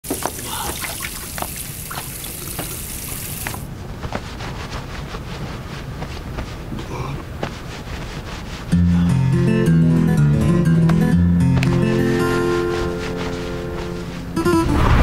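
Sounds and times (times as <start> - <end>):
water running from sink tap: 0.0 - 3.6.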